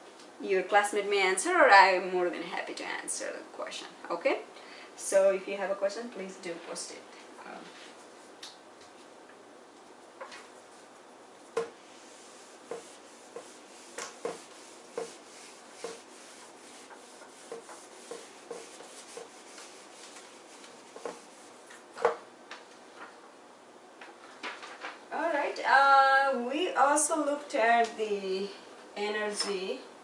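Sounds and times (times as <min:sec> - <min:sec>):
eraser rubbing on whiteboard: 0:11.5 - 0:21.9.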